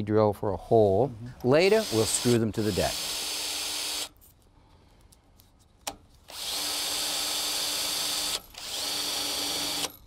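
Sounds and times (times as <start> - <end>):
power drill boring: 1.6 - 4.1, 6.3 - 10.0.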